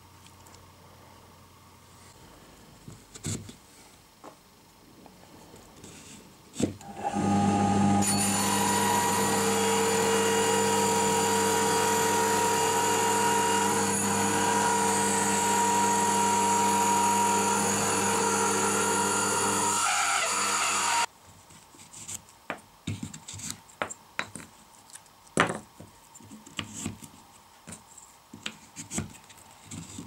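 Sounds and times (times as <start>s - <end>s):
drill press motor whining: 6.8s - 21.1s
rotary cutter grinding into board: 6.9s - 21.1s.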